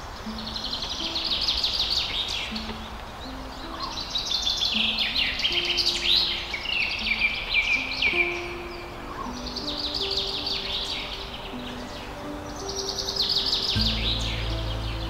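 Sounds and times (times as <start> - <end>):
soft background music: 0.0 - 15.0
songbirds twittering: 0.0 - 15.0.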